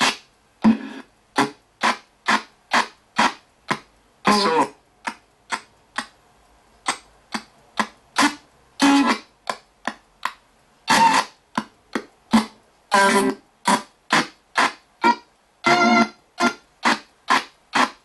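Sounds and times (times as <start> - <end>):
radio static: 10.9 - 11.3.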